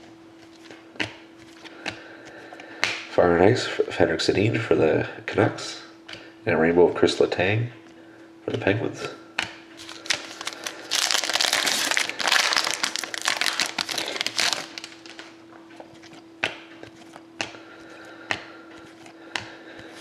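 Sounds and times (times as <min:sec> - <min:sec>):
wrapper tearing and crinkling: 0:09.8 - 0:15.3.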